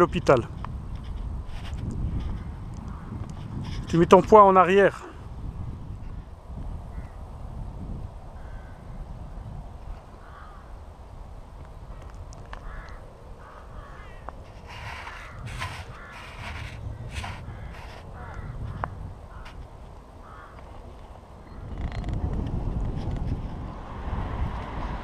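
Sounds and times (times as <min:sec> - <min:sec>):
crows cawing: 0:02.4 - 0:03.2, 0:06.9 - 0:07.1, 0:08.4 - 0:08.8, 0:10.2 - 0:10.8, 0:11.9 - 0:19.6, 0:20.2 - 0:20.8.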